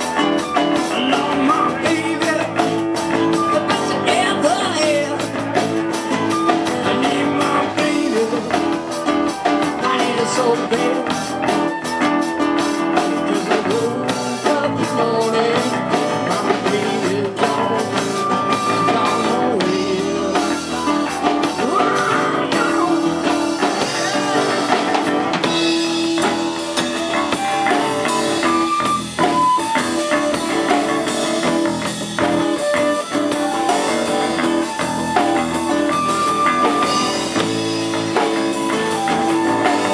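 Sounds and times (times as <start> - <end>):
acoustic guitar: 0.0 - 39.9
drum kit: 0.0 - 39.9
electric bass: 0.0 - 39.9
man singing: 0.6 - 5.7, 6.5 - 11.8, 12.8 - 24.9.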